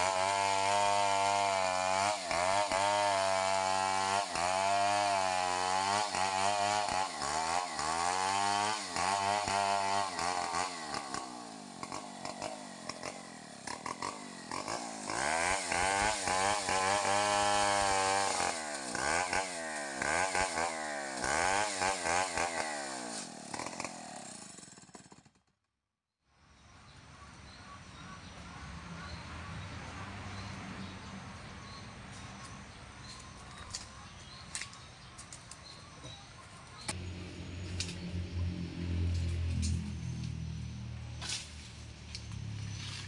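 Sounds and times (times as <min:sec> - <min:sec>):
chainsaw cutting through log: 0:00.0 - 0:25.5.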